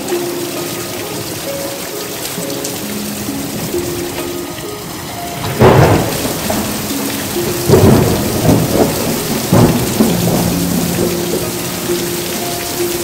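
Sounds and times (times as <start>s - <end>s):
heavy rain falling: 0.0s - 13.0s
thunder bursts: 4.8s - 12.7s.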